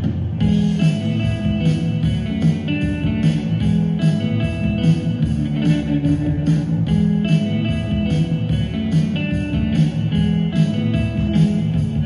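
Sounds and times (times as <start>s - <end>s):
guitar-led music with steady beat: 0.0s - 12.0s.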